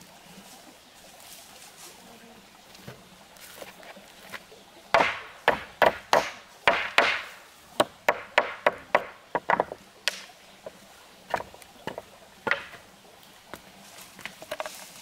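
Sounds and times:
hand tool chopping wood: 5.0 - 10.2, 11.3 - 12.8.

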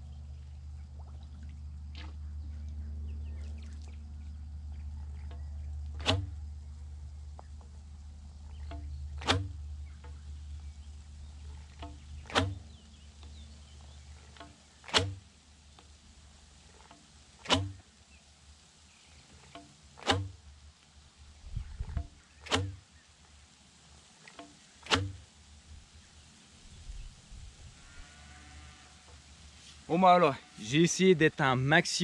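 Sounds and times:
faint ticks: 6.8 - 16.0, 16.6 - 18.2, 19.2 - 21.0, 21.6 - 25.6.

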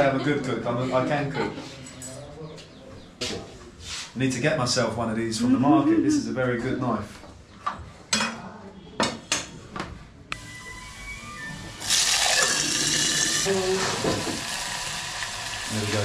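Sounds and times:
food sizzling in hot pan: 11.7 - 16.0.

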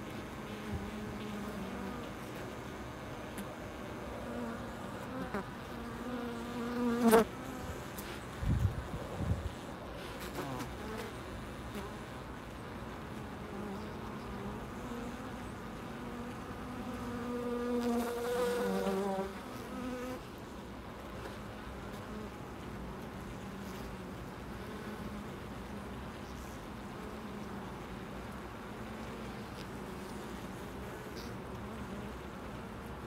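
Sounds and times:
honey bees buzzing: 0.0 - 12.3, 13.0 - 20.2.

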